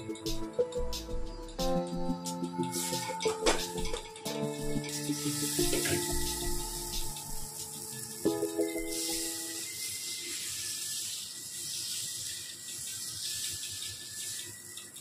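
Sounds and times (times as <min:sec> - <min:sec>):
batter sizzling on griddle: 0:04.8 - 0:15.0.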